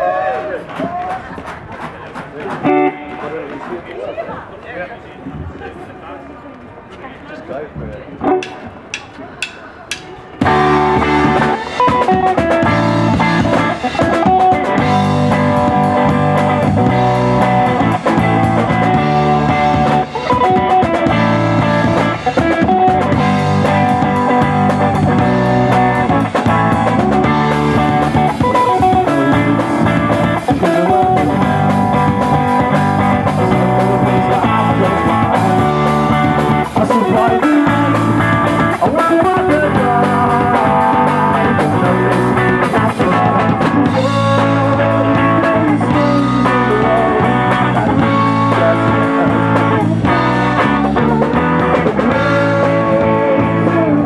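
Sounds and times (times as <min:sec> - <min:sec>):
bass guitar: 0:07.8 - 0:54.0
drum kit: 0:08.3 - 0:54.0
electric guitar: 0:10.4 - 0:54.0
person singing: 0:28.1 - 0:54.0.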